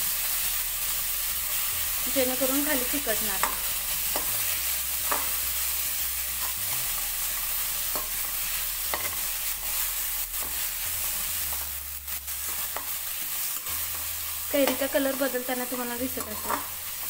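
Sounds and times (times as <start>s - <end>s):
food sizzling in pan: 0.0s - 17.0s
spatula scraping pan: 3.1s - 11.7s, 12.3s - 17.0s.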